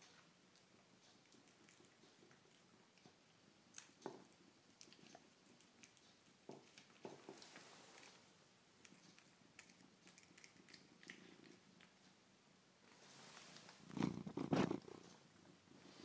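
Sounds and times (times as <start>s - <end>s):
cat eating with wet smacking: 0.0s - 12.4s.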